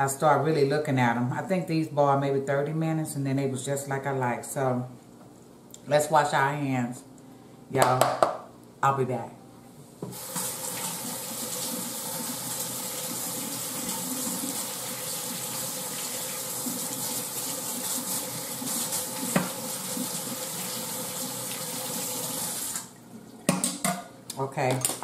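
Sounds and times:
tap running: 0:18.0 - 0:20.2.

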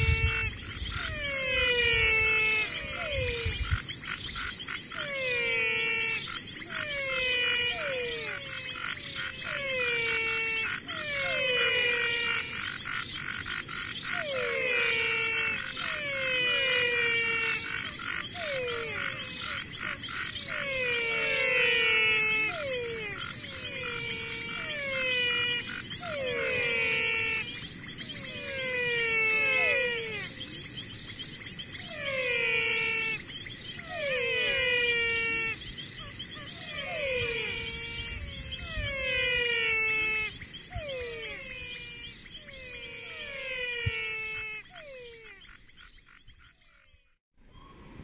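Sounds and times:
high-pitched insect drone: 0:00.0 - 0:47.2
falling whistled animal calls: 0:00.0 - 0:48.0.

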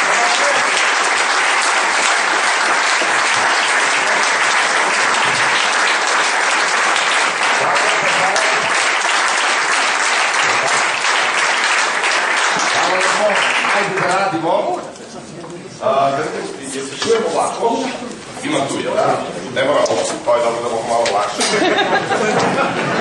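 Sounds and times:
audience applauding: 0:00.0 - 0:14.6.

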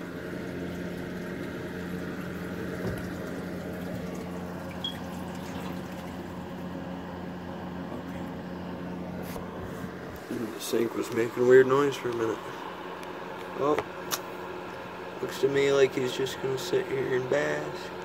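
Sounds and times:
running water: 0:00.0 - 0:06.9
plumbing humming: 0:00.0 - 0:18.0.

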